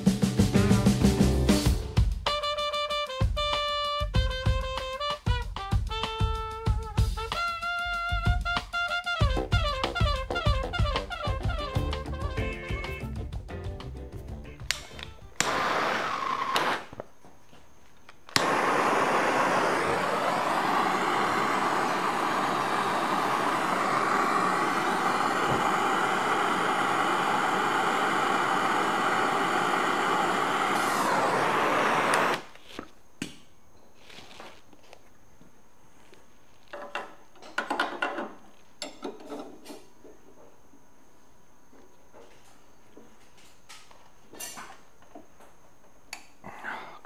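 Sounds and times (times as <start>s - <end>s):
gas torch hissing: 14.8s - 17.1s, 18.3s - 32.8s.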